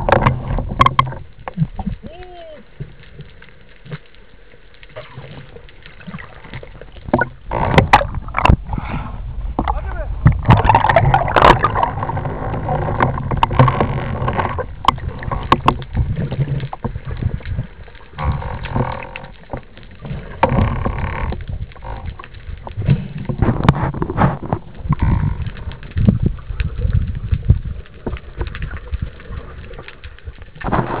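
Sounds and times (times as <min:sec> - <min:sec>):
clicks and knocks: 0:00.0 - 0:01.7, 0:06.5 - 0:08.6, 0:09.6 - 0:17.0
underwater water sloshing and rushing: 0:00.0 - 0:31.0
bubbles: 0:04.9 - 0:08.8, 0:09.6 - 0:29.8.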